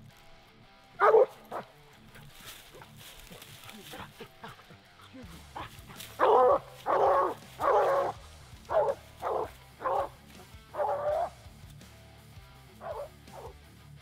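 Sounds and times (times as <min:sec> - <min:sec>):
dog barking: 0:01.0 - 0:01.8, 0:02.7 - 0:04.8, 0:05.6 - 0:11.4, 0:12.8 - 0:13.6.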